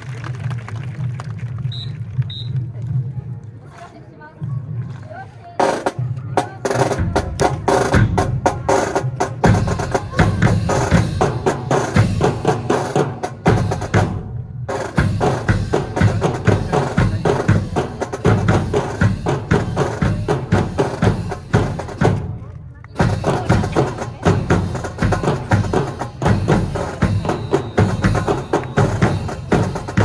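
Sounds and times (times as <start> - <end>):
marching drums playing cadence: 5.6 - 22.4, 23.0 - 30.0.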